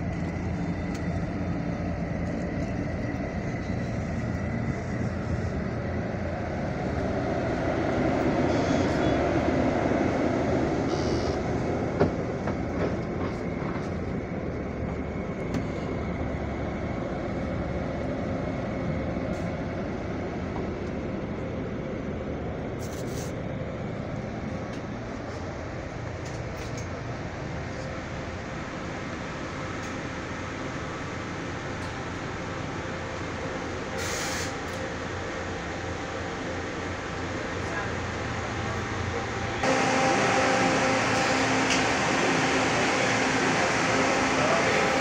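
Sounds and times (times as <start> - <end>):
bus diesel engine idling: 21.4 - 45.0.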